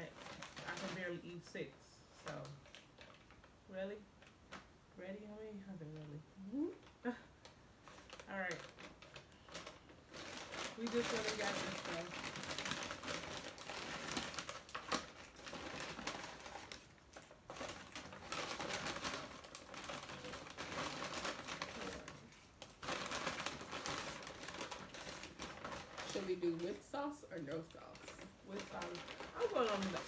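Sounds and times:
paper bags rustling: 0:00.0 - 0:01.6, 0:07.8 - 0:30.0.

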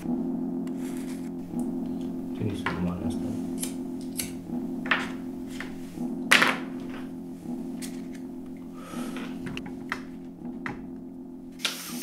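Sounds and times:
low droning film score: 0:00.0 - 0:11.6
sharp hiss: 0:11.6 - 0:12.0.

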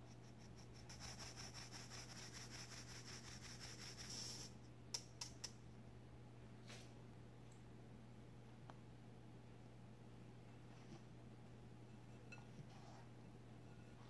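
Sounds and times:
flour rustling through sieve: 0:01.0 - 0:04.6.

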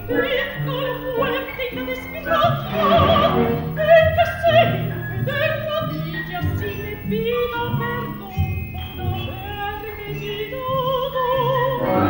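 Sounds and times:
woman singing opera: 0:00.0 - 0:12.0
orchestral accompaniment: 0:02.6 - 0:03.8, 0:11.8 - 0:12.0.

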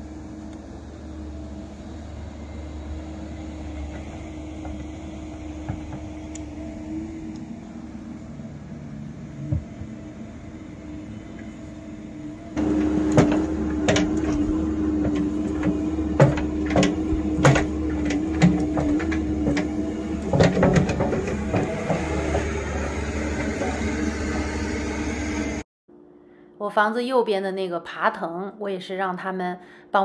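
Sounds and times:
excavator engine running: 0:00.0 - 0:25.6
bucket clanking through soil and stones: 0:12.6 - 0:23.8.

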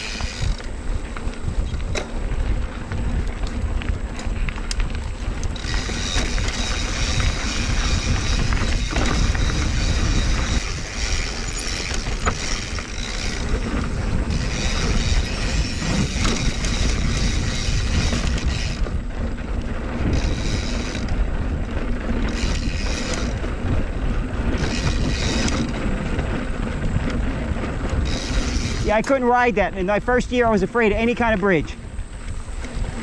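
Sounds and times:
bike rattling over bumps: 0:00.0 - 0:33.0
bike tyre noise: 0:00.0 - 0:33.0
wind rumbling on microphone: 0:00.0 - 0:33.0.

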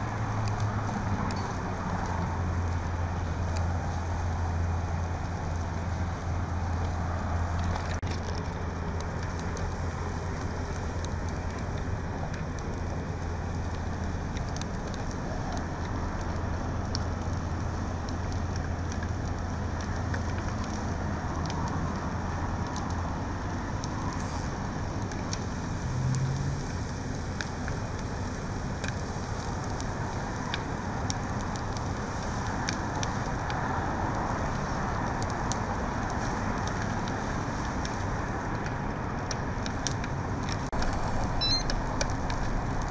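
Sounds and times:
fire crackling and popping: 0:00.0 - 0:42.9
flames rushing: 0:00.0 - 0:42.9
low steady hum: 0:39.1 - 0:42.9.

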